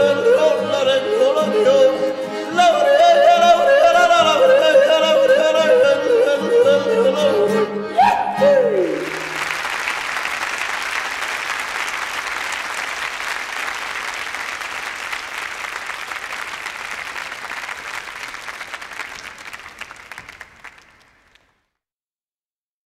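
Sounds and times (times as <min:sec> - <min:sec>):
audience applauding: 0:08.8 - 0:21.7.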